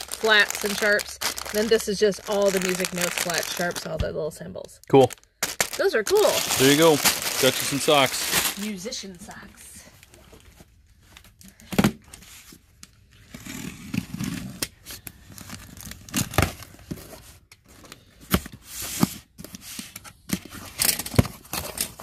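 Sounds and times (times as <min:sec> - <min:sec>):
cardboard flaps rustling and tearing: 0:05.8 - 0:08.6.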